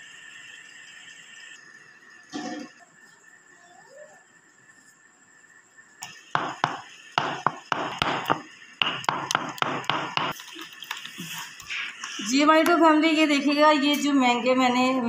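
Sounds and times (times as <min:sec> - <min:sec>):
pestle mashing in mortar: 0:06.4 - 0:10.4.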